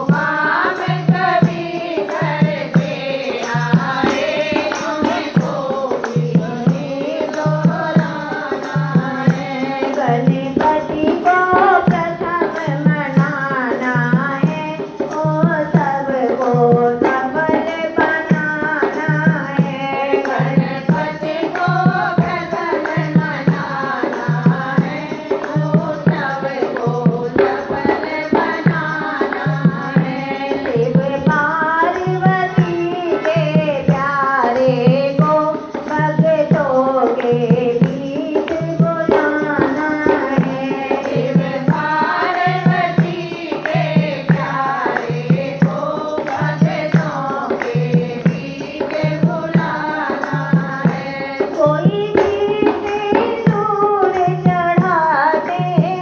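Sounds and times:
devotional folk singing: 0:00.0 - 0:56.0
steady drum beat: 0:00.0 - 0:56.0.

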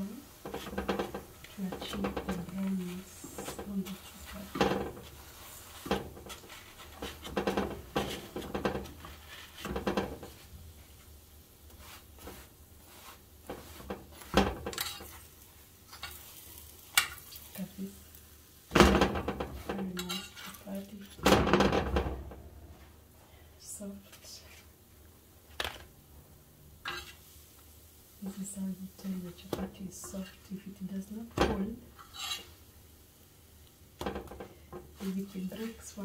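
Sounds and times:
metal utensil scraping frying pan: 0:00.0 - 0:10.5, 0:11.8 - 0:17.8, 0:18.8 - 0:21.9, 0:26.8 - 0:27.4, 0:29.2 - 0:32.6, 0:35.0 - 0:36.0.

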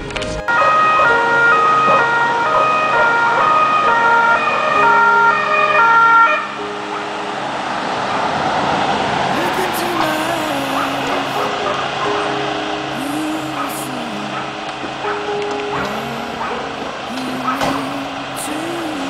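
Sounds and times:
ambulance two-tone siren: 0:00.4 - 0:10.1.

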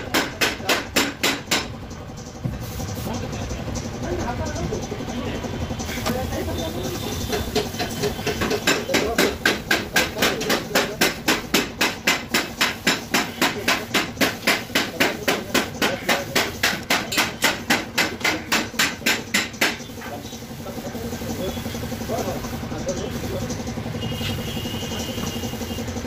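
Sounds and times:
rapid hammer blows: 0:07.0 - 0:20.0.

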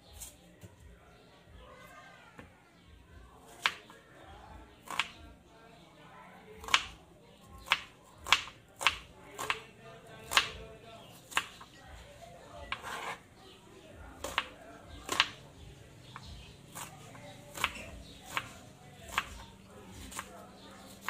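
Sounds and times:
knife chopping onion on wooden board: 0:04.8 - 0:05.2, 0:06.6 - 0:10.6, 0:11.2 - 0:11.7, 0:12.6 - 0:13.2, 0:14.2 - 0:15.4, 0:16.0 - 0:21.0.

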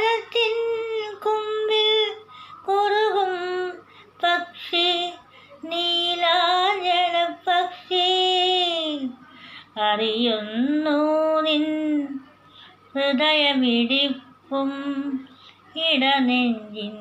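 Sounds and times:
woman singing solo: 0:13.0 - 0:17.0.

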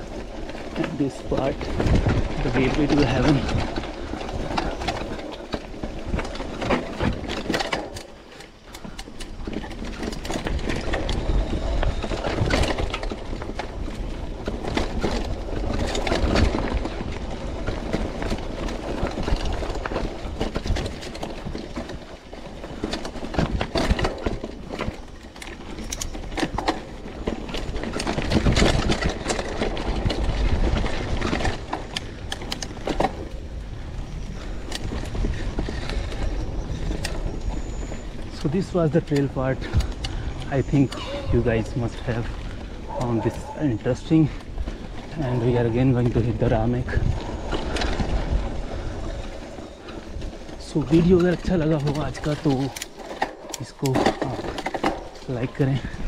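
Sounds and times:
bike rattling over bumps: 0:00.0 - 0:56.0
tyres crunching over stones: 0:00.0 - 0:56.0
low rumble: 0:39.8 - 0:51.2.

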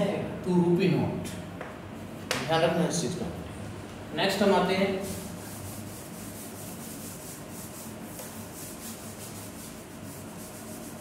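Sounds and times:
eraser rubbing on chalkboard: 0:05.0 - 0:11.0.

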